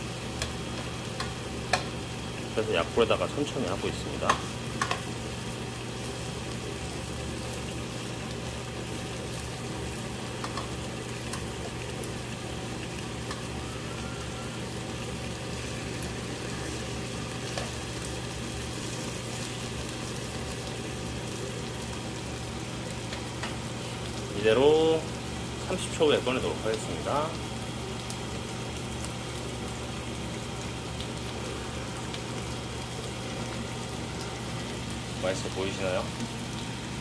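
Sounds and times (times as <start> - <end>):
meat and pepper sizzling in pan: 0.0 - 37.0
tongs clicking against pan: 0.4 - 1.9, 4.2 - 5.1, 10.4 - 10.7.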